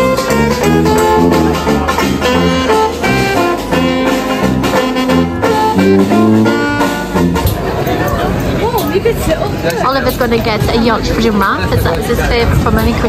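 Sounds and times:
sousaphone bass notes: 0:00.0 - 0:08.5
jazz band playing: 0:00.0 - 0:13.0.

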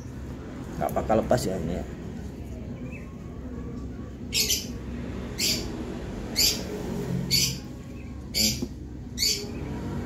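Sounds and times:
low steady background noise: 0:00.0 - 0:10.0
bird harsh chirps: 0:04.3 - 0:09.8.

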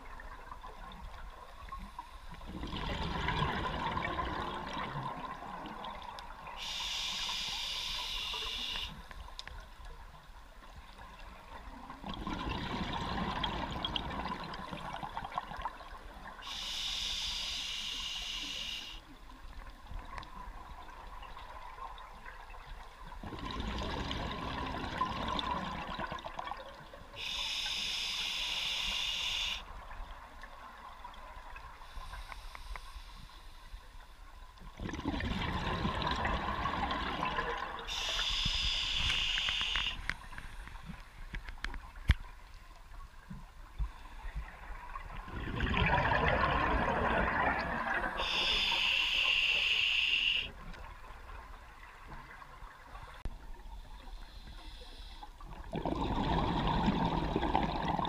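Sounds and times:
exhaled bubbles underwater: 0:00.0 - 0:06.8, 0:11.0 - 0:16.5, 0:19.6 - 0:27.4, 0:34.7 - 0:40.1, 0:44.2 - 0:53.2, 0:55.4 - 0:58.0
regulator hiss on inhale: 0:06.6 - 0:09.1, 0:16.4 - 0:19.0, 0:27.2 - 0:29.7, 0:31.8 - 0:34.0, 0:37.9 - 0:40.7, 0:48.2 - 0:50.5, 0:53.9 - 0:55.4.

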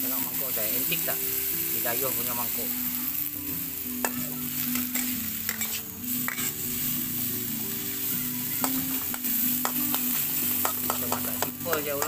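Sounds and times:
food sizzling in hot oil: 0:00.0 - 0:12.0
metal spatula scraping wok: 0:04.0 - 0:11.8.

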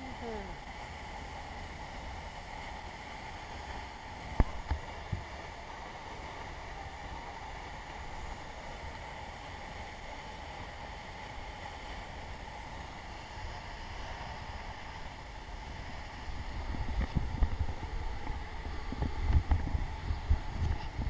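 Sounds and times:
waterfall roaring: 0:00.0 - 0:21.0
wind buffeting microphone: 0:14.2 - 0:21.0.

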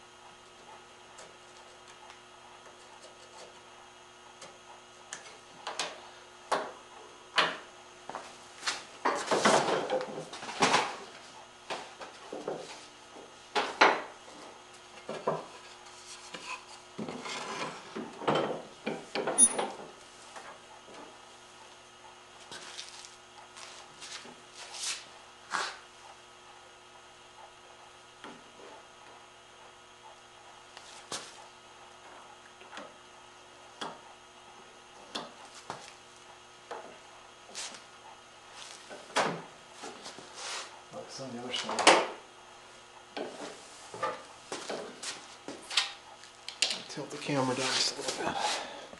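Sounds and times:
rubbing and scraping wood: 0:15.4 - 0:17.8.

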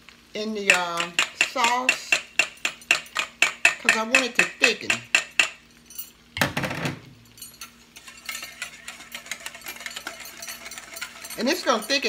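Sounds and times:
utensil clattering: 0:07.4 - 0:12.0
utensil scraping metal bowl: 0:08.0 - 0:12.0.

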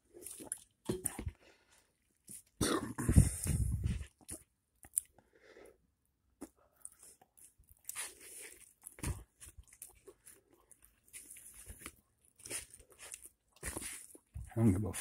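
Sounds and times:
person chewing and crunching food: 0:00.0 - 0:15.0.

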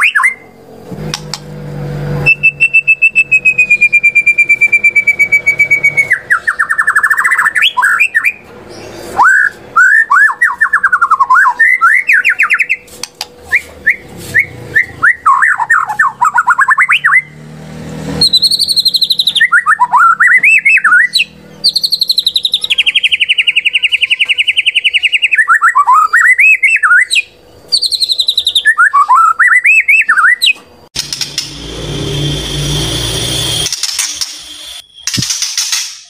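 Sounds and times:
rough noise: 0:00.5 - 0:06.4, 0:12.1 - 0:15.2, 0:17.1 - 0:19.6, 0:30.8 - 0:36.0
bird song with rattling trill: 0:02.3 - 0:12.9, 0:18.2 - 0:32.3, 0:33.6 - 0:36.0.

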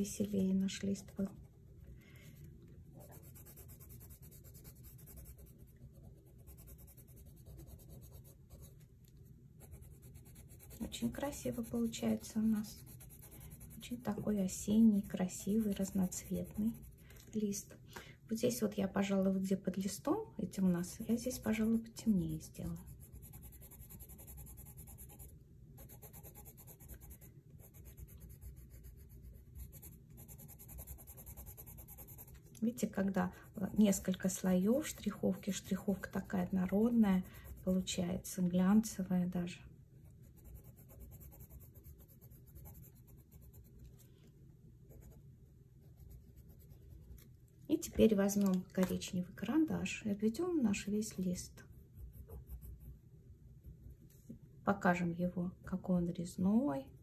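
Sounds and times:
pencil scratching on paper: 0:03.0 - 0:08.8, 0:09.6 - 0:17.0, 0:22.6 - 0:32.4, 0:33.5 - 0:38.0, 0:40.2 - 0:43.8, 0:44.9 - 0:45.2, 0:45.8 - 0:47.2, 0:51.6 - 0:52.9.

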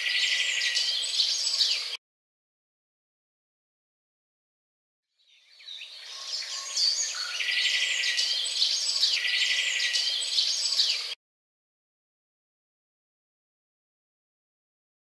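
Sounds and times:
birds chirping and singing: 0:00.0 - 0:02.0, 0:05.2 - 0:11.2.

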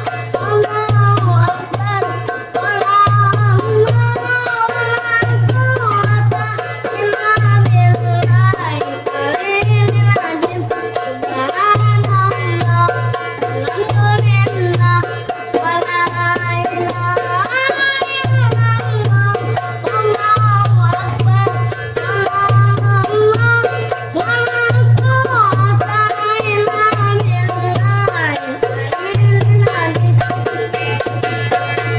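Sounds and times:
boy singing: 0:00.0 - 0:31.9.

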